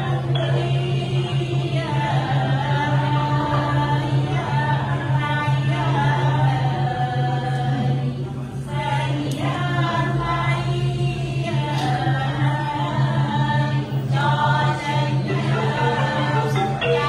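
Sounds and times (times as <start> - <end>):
person singing slow vocal line: 12.8 - 17.0.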